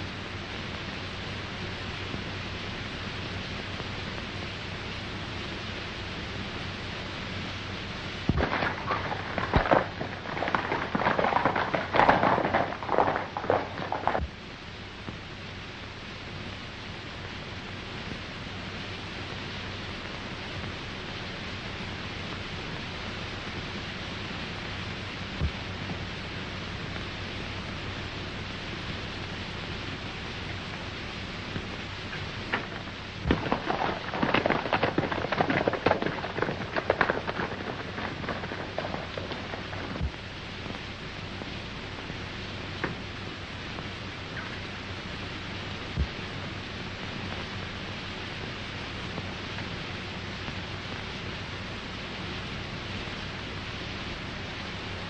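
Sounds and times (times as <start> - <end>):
old film soundtrack hiss: 0.0 - 55.0
horse hoofbeats galloping: 8.3 - 14.3, 32.1 - 40.2.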